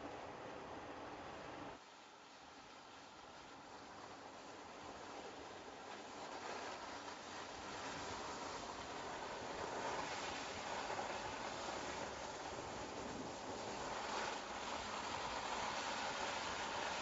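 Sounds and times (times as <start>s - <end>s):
tyres rushing on snow: 3.6s - 17.0s.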